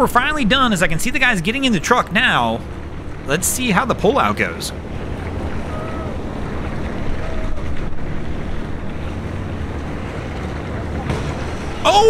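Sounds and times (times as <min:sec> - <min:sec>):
wind on microphone: 0:04.9 - 0:11.0.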